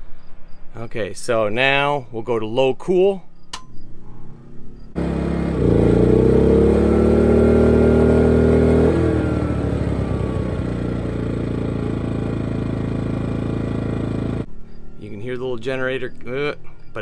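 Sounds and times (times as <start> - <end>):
generator engine running: 4.3 - 14.5.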